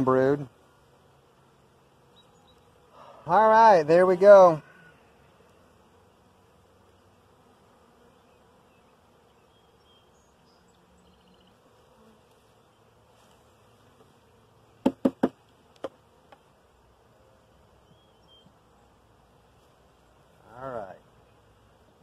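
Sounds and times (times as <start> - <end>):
honeybees buzzing: 0.0 - 22.0
frame knocking on wooden box: 14.8 - 16.0.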